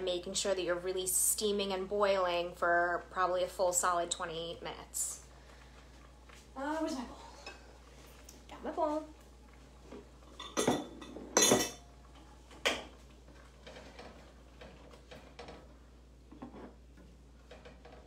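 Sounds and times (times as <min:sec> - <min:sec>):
bowl and utensils clattering: 0:10.2 - 0:11.8.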